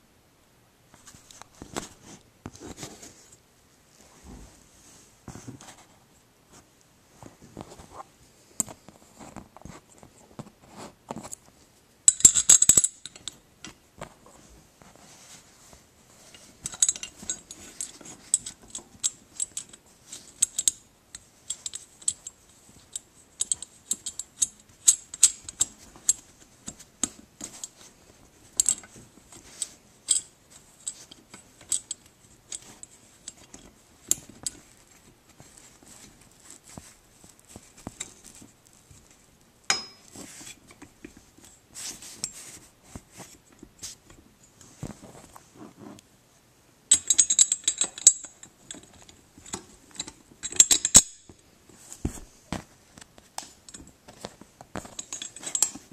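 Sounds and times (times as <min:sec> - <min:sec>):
metal pieces clicking and clinking: 0:12.1 - 0:13.4, 0:46.9 - 0:48.9, 0:49.5 - 0:51.3.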